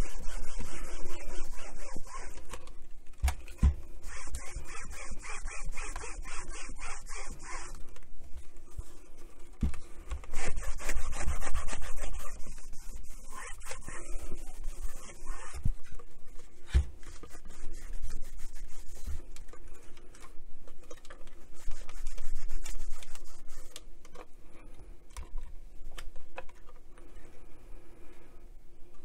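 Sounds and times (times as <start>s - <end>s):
cloth rubbing on radio case: 0.0s - 2.4s, 4.0s - 7.8s, 10.3s - 19.3s, 21.4s - 23.8s.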